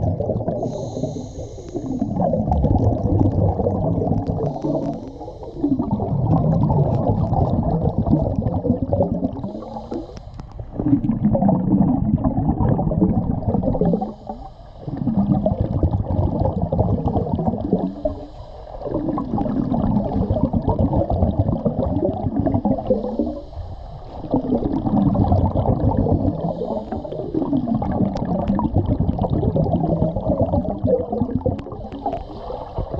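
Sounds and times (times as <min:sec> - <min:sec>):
gurgling exhaled bubbles: 0:00.0 - 0:32.9
diver breathing through regulator: 0:00.4 - 0:06.4, 0:09.2 - 0:11.0, 0:13.5 - 0:16.5, 0:17.1 - 0:19.2, 0:22.7 - 0:28.0, 0:31.7 - 0:32.9.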